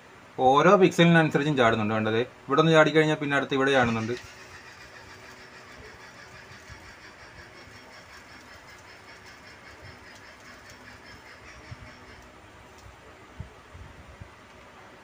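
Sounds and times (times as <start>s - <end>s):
faint background hum: 0.0s - 15.0s.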